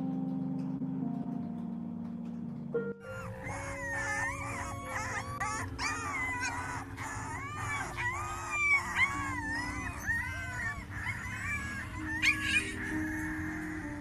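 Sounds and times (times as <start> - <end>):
puppies whining and squealing: 3.0 - 14.0.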